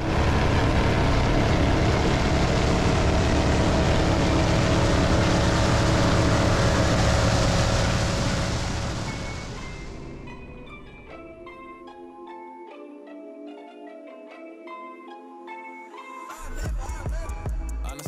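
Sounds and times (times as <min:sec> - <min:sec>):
boat engine running hard: 0:00.0 - 0:11.4.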